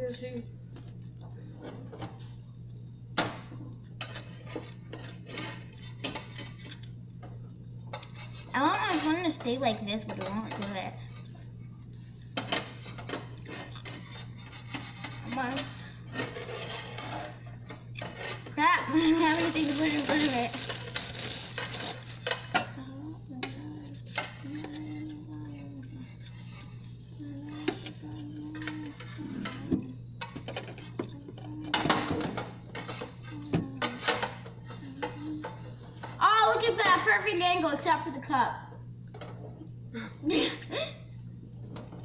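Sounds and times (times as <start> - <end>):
steady low hum: 0.0 - 42.0
utensils clinking against dishes: 3.9 - 11.4, 12.2 - 37.0
spatula scraping a pan: 4.0 - 6.8, 7.9 - 11.4, 12.0 - 22.6, 23.4 - 30.8, 32.6 - 36.9.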